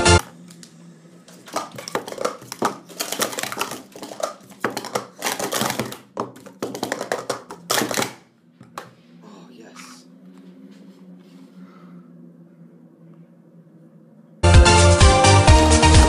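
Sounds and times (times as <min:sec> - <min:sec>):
plastic cups clacking: 0:01.3 - 0:08.9.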